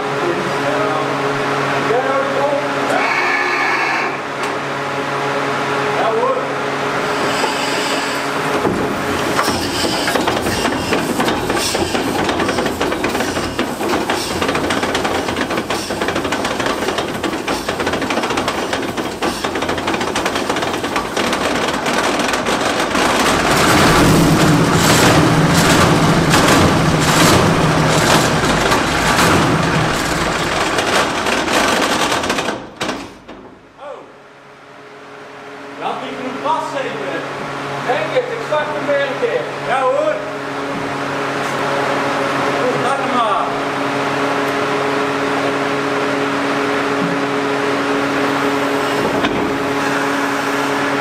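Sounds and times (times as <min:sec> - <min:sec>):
diesel engine running loud: 0:05.0 - 0:31.6.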